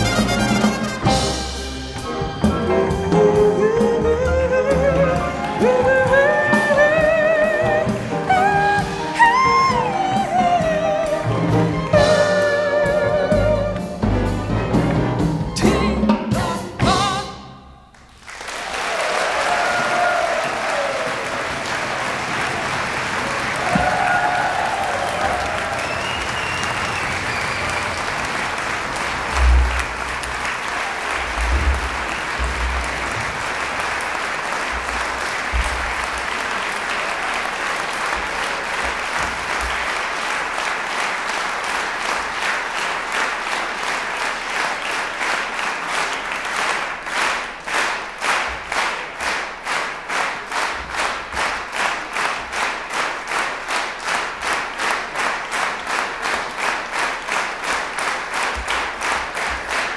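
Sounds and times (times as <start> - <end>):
audience applauding: 0.0 - 3.0, 3.8 - 14.0, 17.9 - 59.9
rhythmic unison clapping: 17.9 - 59.9.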